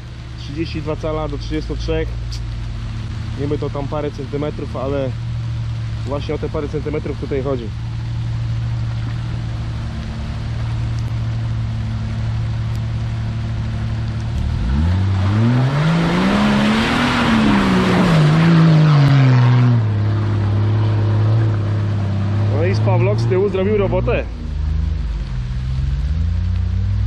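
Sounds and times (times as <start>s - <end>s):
car engine idling and revving: 0.0s - 27.0s
tyres churning mud: 8.6s - 27.0s.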